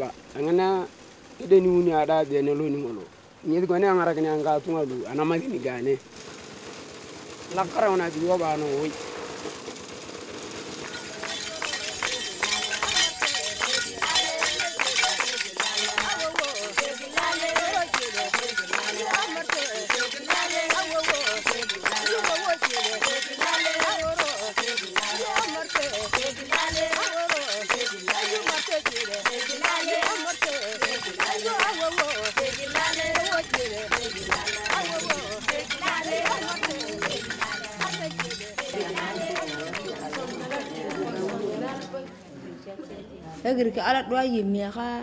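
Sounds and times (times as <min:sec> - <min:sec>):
sharp clicks and clinks: 0:10.6 - 0:40.8
group of people singing: 0:10.8 - 0:42.2.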